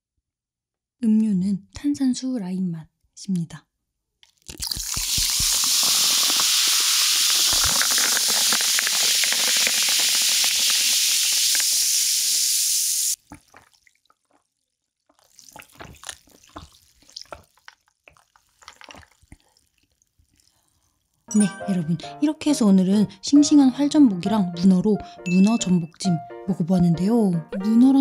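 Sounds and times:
drink sipped and swallowed: 0:04.2 - 0:11.7, 0:13.2 - 0:14.5, 0:15.1 - 0:20.8
sparkling water poured over ice: 0:04.6 - 0:13.2.

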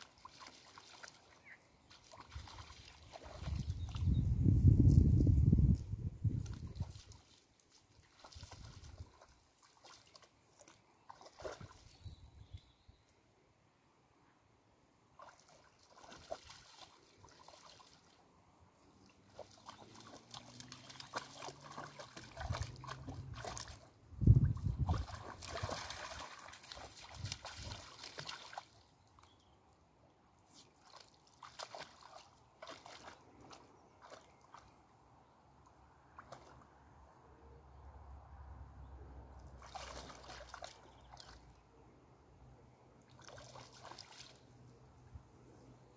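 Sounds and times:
dog splashing through water: 0:00.0 - 0:04.2, 0:06.4 - 0:12.0, 0:15.2 - 0:18.2, 0:18.9 - 0:28.9, 0:30.5 - 0:34.8, 0:36.1 - 0:36.7, 0:39.4 - 0:41.6, 0:43.1 - 0:44.7.

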